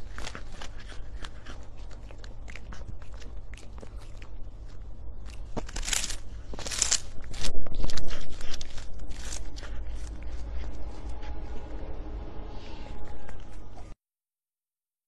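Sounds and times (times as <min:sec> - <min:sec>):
cat crunching dried fish treat: 0:00.0 - 0:11.2.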